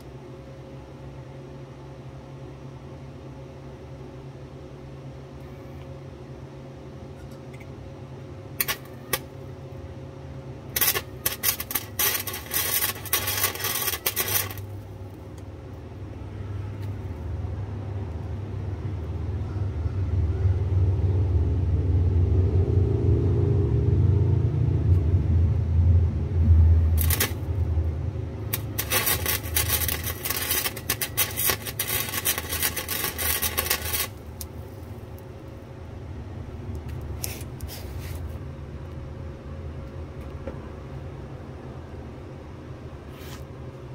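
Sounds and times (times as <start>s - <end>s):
welder arc crackling: 8.6s - 9.3s, 10.7s - 15.5s, 26.9s - 35.2s
welder snaps: 8.6s - 9.3s, 10.8s - 14.6s, 27.0s - 27.5s
low rumble: 19.8s - 37.1s.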